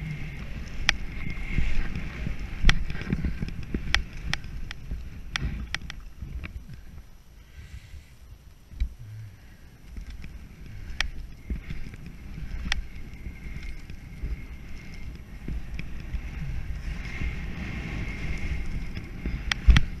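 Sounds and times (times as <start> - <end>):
skis scraping over snow: 0.0 - 6.2, 10.1 - 20.0
wind rumble on microphone: 0.0 - 20.0
sharp ticks: 0.4 - 1.5, 9.9 - 16.8, 18.6 - 20.0.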